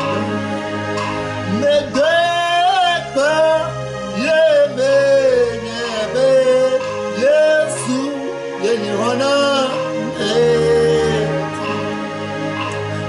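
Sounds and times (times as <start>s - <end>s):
instrumental accompaniment: 0.0s - 13.0s
man singing slowly: 1.4s - 12.8s.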